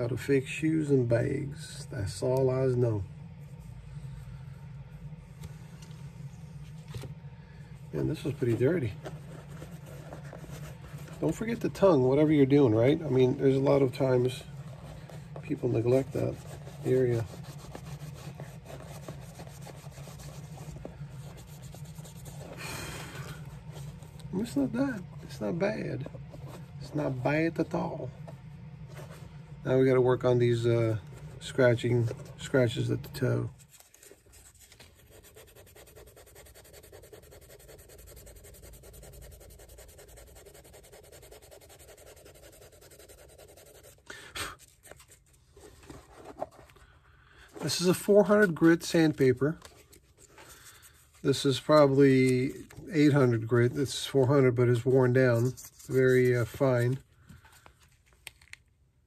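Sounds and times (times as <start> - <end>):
steady low hum: 0.0 - 59.0
cloth rag scrubbing leather shoe: 7.9 - 28.0, 34.8 - 46.6, 47.6 - 57.0.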